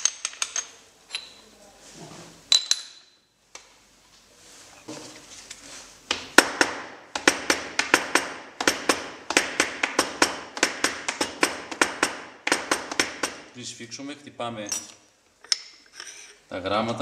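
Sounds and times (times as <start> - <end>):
hammer tapping wooden block: 6.1 - 13.4.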